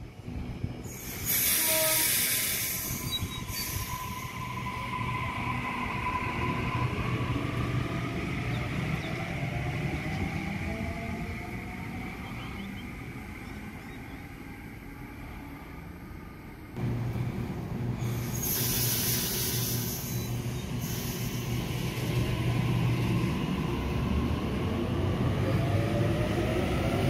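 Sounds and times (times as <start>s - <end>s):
electric train passing: 0.0s - 27.0s
hiss: 0.9s - 4.2s, 18.0s - 21.9s.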